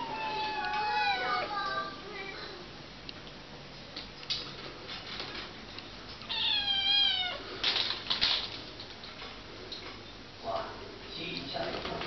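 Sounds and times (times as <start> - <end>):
cat meowing: 0.0 - 1.5, 6.3 - 7.4.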